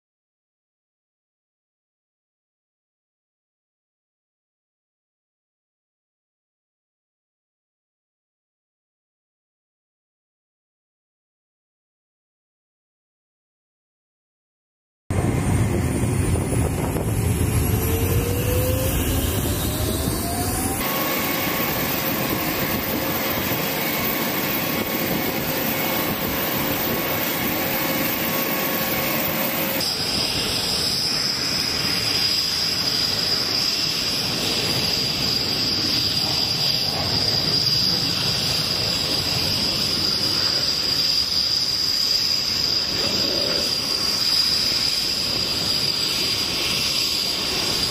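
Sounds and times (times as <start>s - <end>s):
high-pitched turbine whine: 15.1s - 47.9s
jet turbine roar: 15.1s - 47.9s.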